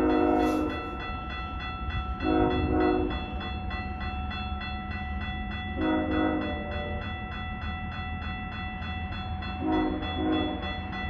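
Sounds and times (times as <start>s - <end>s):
train air horn: 0.0s - 0.9s, 2.2s - 3.2s, 5.8s - 6.5s, 9.6s - 10.6s
train rumble: 0.0s - 11.0s.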